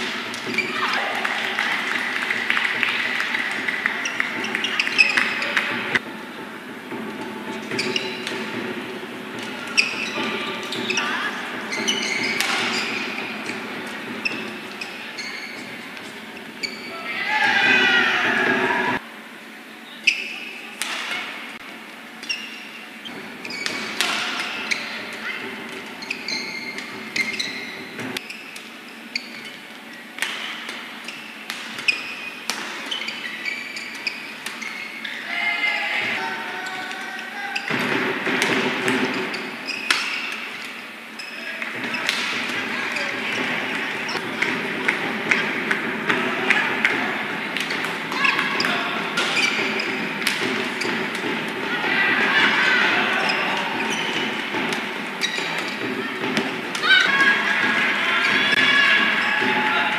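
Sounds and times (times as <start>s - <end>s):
shoes squeaking on court: 0.0s - 17.2s, 19.8s - 36.2s, 37.5s - 59.9s
crowd noise: 0.0s - 59.9s
rackets striking shuttlecock: 11.7s - 15.0s, 30.1s - 34.6s, 37.7s - 40.8s, 43.3s - 51.6s.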